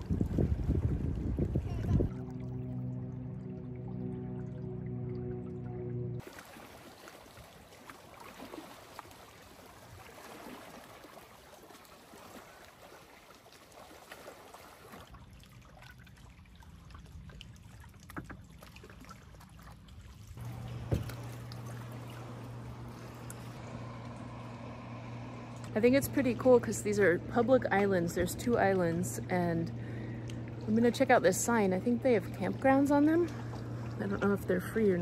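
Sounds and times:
low steady hum: 0:00.0 - 0:06.2, 0:20.3 - 0:35.0
water lapping against kayak hull: 0:00.0 - 0:35.0
paddle drips: 0:02.0 - 0:35.0.

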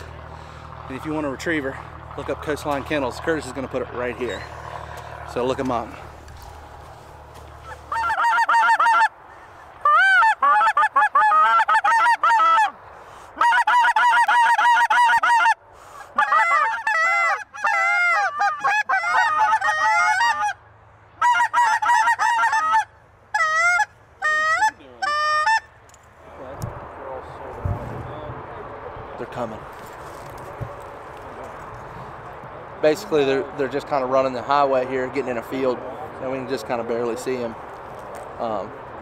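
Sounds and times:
goose call honks and clucks: 0:05.8 - 0:20.6, 0:21.2 - 0:25.8.

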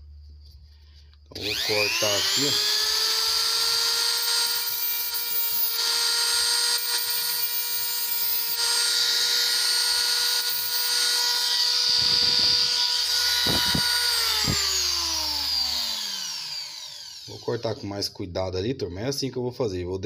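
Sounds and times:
rotary tool whining: 0:01.3 - 0:18.1.

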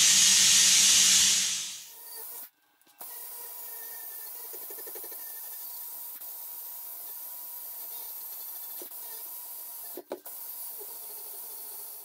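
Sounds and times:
air grinder on steel: 0:00.0 - 0:01.9.

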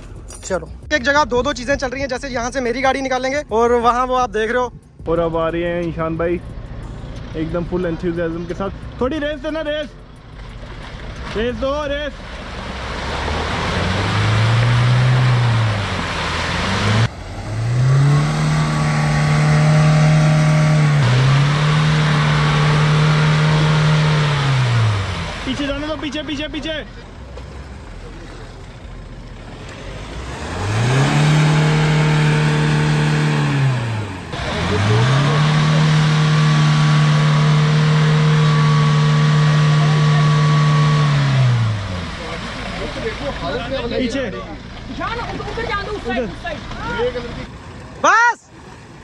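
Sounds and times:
engine revving hard: 0:12.4 - 0:25.7, 0:29.6 - 0:42.4.

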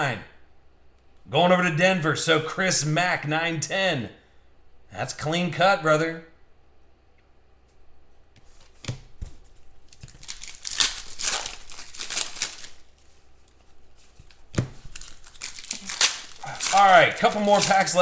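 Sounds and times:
foil wrapper tearing and crinkling: 0:09.8 - 0:18.0.

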